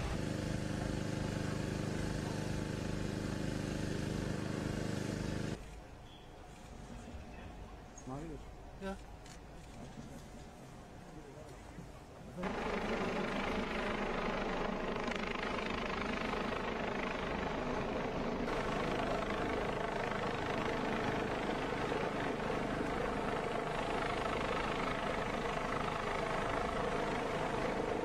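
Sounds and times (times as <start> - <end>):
helicopter hovering: 0.0 - 5.7, 12.4 - 28.0.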